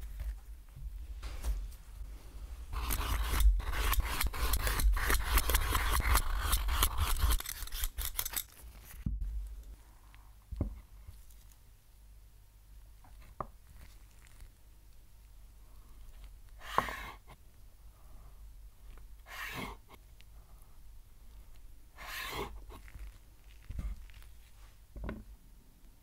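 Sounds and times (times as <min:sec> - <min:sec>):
blade scraping potato skin: 0:02.7 - 0:09.0.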